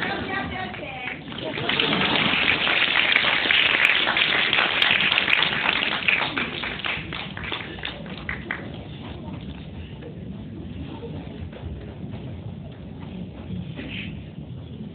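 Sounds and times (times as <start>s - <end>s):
audience applause: 0.0s - 9.2s.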